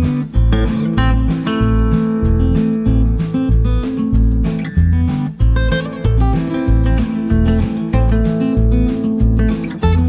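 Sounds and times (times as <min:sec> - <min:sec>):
strummed acoustic guitar: 0:00.0 - 0:10.0.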